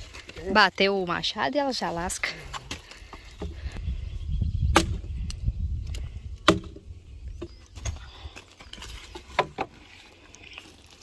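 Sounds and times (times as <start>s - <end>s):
axe chopping firewood: 2.4s - 3.6s, 4.7s - 8.0s, 8.6s - 9.8s.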